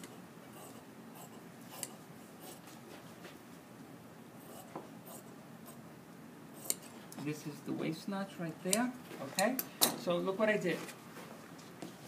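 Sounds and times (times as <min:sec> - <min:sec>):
shear blades clicking: 0:06.6 - 0:06.9, 0:08.7 - 0:08.9
shears cutting cloth: 0:06.6 - 0:07.0.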